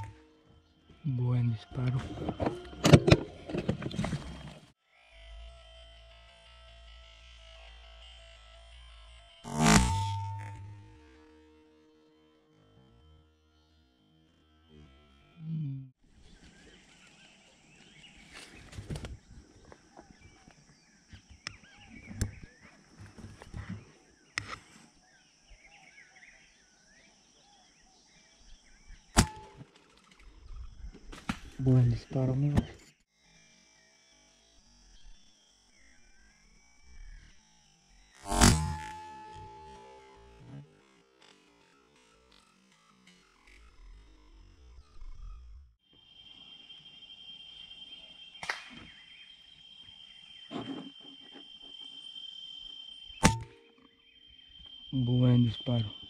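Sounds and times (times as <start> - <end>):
faint birds chirping: 0.0 - 4.8, 14.7 - 33.0, 43.3 - 56.0
high-pitched insect drone: 4.8 - 15.8, 33.2 - 56.0
rifle shot: 29.2 - 29.6
sharp click: 29.2 - 30.2, 38.3 - 40.0, 48.4 - 48.9, 53.2 - 53.9
faint bird chirps: 43.5 - 56.0.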